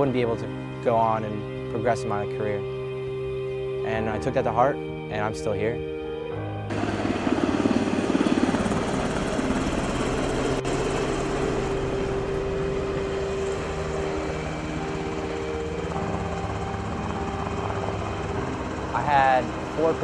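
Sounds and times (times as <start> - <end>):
helicopter rotor noise: 0.0 - 3.2, 6.4 - 20.0
low hum: 5.9 - 20.0.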